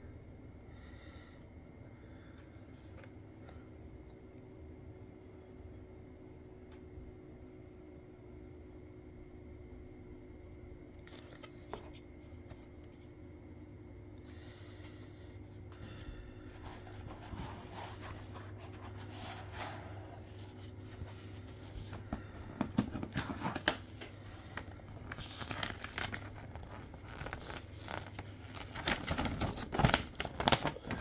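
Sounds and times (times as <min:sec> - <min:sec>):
paper crinkling: 0:15.9 - 0:31.0
cardboard and foam scraping: 0:16.6 - 0:22.1.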